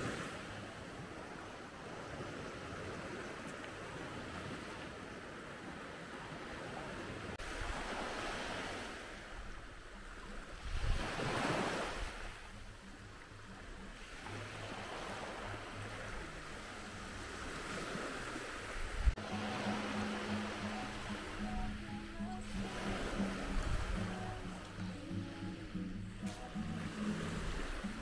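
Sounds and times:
small waves washing onto sand: 0:00.0 - 0:28.0
wind rumbling on microphone: 0:07.1 - 0:19.2, 0:22.2 - 0:25.4.

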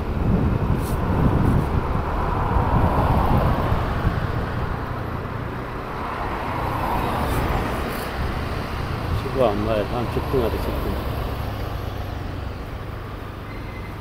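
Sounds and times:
cars driving: 0:00.0 - 0:14.0
road and traffic noise: 0:00.0 - 0:14.0.

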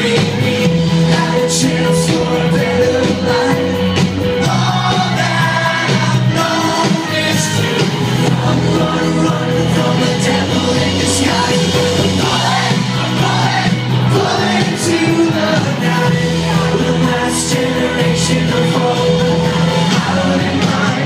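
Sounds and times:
live rock band with singer: 0:00.0 - 0:21.0.

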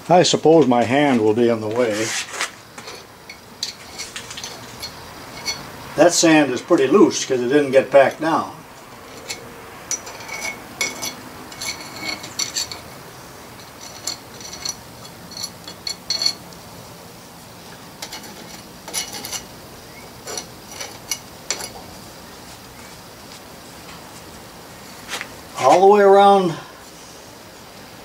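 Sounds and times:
spoon scraping through sand: 0:01.8 - 0:03.1
metal clinking on iron: 0:02.8 - 0:16.5, 0:18.0 - 0:22.0.

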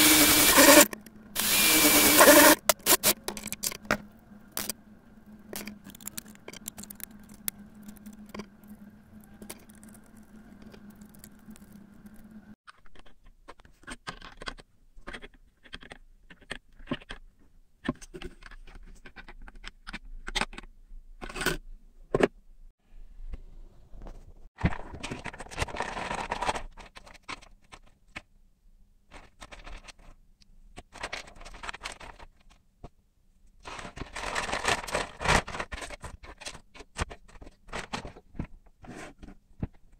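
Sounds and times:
wires and connectors rustling: 0:05.4 - 0:12.4.

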